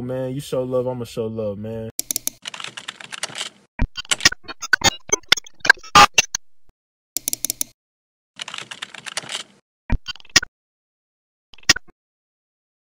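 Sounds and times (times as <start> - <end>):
keyboard typing clicks: 2.0 - 5.8, 7.2 - 7.8.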